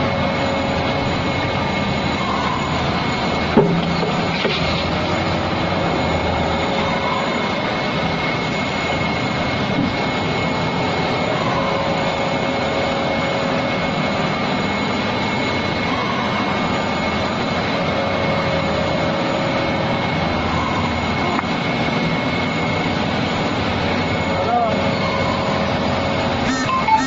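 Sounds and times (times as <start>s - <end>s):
high machine whine: 0.0s - 27.0s
machine running: 25.4s - 27.0s.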